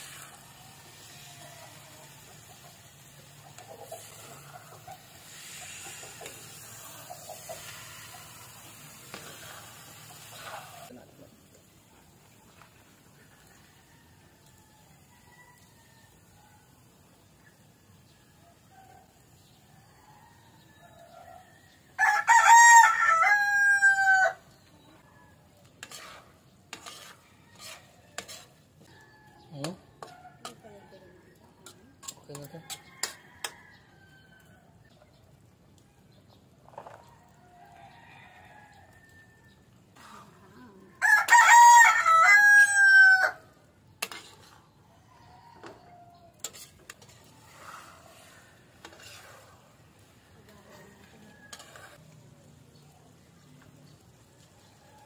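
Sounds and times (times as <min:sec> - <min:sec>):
rooster crowing: 0:20.1 - 0:24.5, 0:41.0 - 0:43.6, 0:45.0 - 0:46.7, 0:50.6 - 0:52.0.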